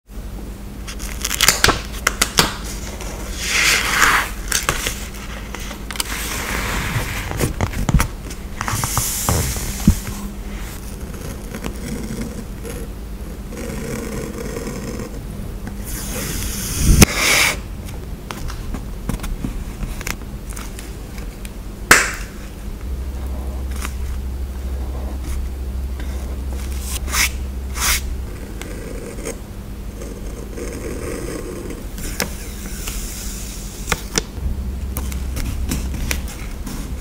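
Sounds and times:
paper rustling and scraping: 0.9s - 12.4s.

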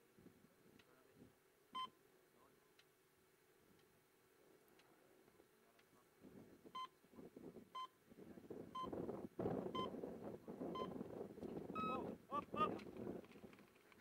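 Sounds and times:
background noise: 0.0s - 14.0s
timer beeps: 1.8s - 2.0s, 11.8s - 12.0s.

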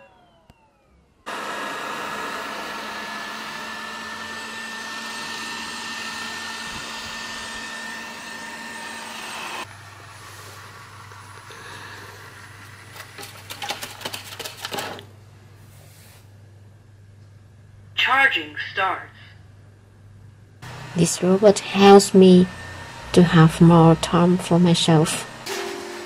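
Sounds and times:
robot vacuum fan whining: 0.0s - 15.0s, 20.6s - 26.0s.

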